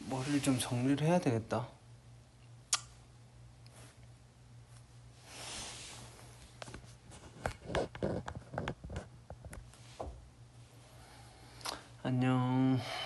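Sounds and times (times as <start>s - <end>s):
faint low hum: 0.0s - 13.0s
duvet rustling: 3.6s - 7.6s
knocks and rubs on phone microphone: 6.7s - 10.2s.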